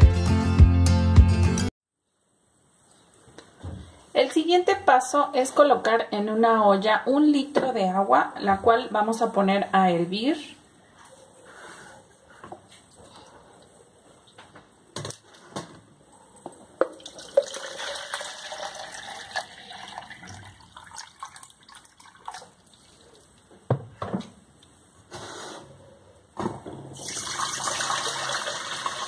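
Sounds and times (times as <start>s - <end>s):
water pouring into jug: 16.8s - 23.3s, 27.0s - 29.0s.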